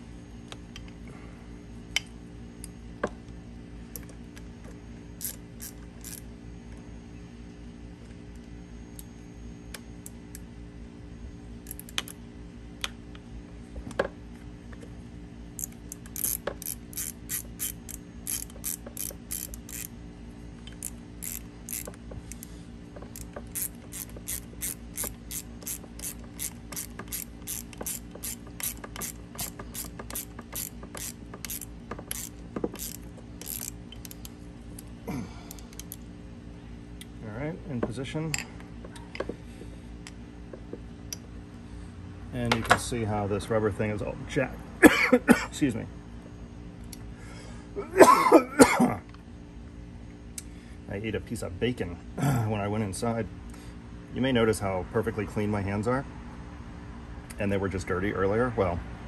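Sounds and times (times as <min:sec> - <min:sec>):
ratchet wrench clicking: 0:05.2 - 0:06.2, 0:11.6 - 0:12.2, 0:15.6 - 0:19.9, 0:20.6 - 0:34.9, 0:35.5 - 0:36.0.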